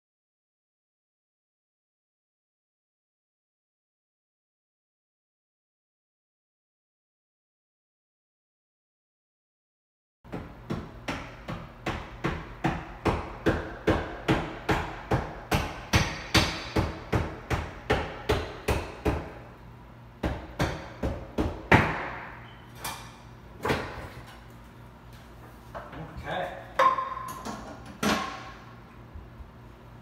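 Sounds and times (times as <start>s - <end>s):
hammer striking wood: 10.3s - 19.4s, 20.2s - 22.3s, 26.8s - 27.3s.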